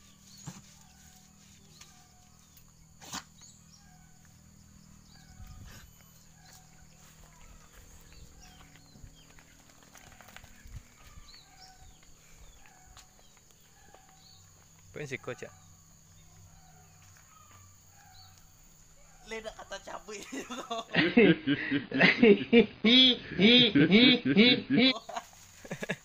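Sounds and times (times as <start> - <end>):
high-pitched insect drone: 0.0 - 9.4.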